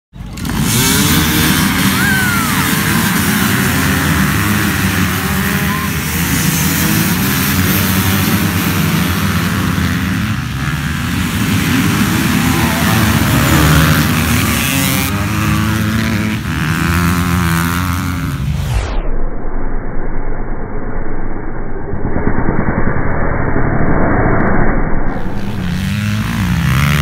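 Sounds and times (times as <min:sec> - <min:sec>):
dirt bikes accelerating at high revs: 0:00.2 - 0:18.7, 0:25.1 - 0:27.0.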